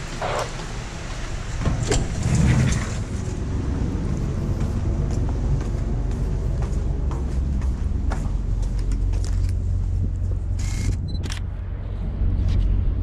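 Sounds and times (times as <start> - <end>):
steel door unlatching and opening: 1.6 - 3.1
footsteps on deck: 4.2 - 10.0.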